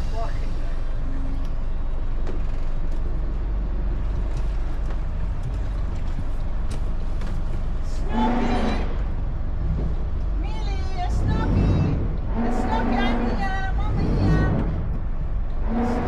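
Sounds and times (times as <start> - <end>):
boat engine drone: 0.0 - 16.0.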